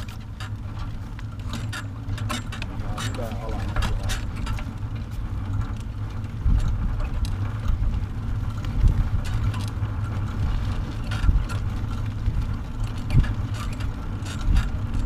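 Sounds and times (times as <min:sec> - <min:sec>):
trailer frame clicks and rattles: 0:00.0 - 0:15.0
wheels rumbling on asphalt: 0:00.0 - 0:15.0
wind buffeting microphone: 0:00.0 - 0:15.0.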